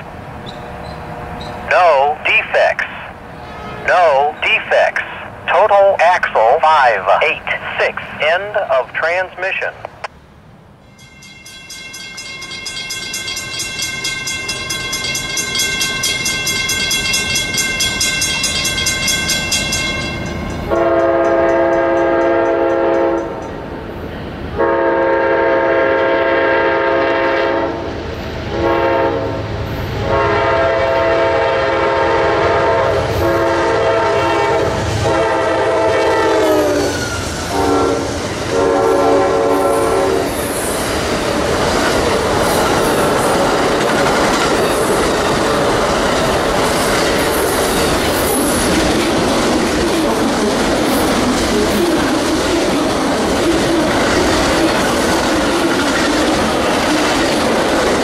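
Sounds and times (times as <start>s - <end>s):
train cars rushing and clacking: 10.9s - 58.0s
locomotive horn blasts: 20.7s - 23.3s, 24.6s - 27.8s, 28.5s - 29.4s, 30.0s - 36.8s, 37.5s - 40.2s.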